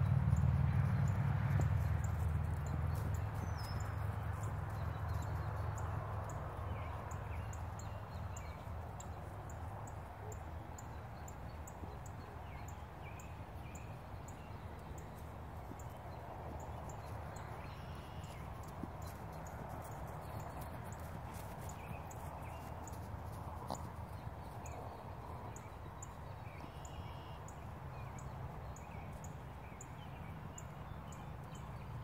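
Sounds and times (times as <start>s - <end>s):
horse hoofbeats on grass: 0.0s - 9.6s, 13.5s - 27.4s.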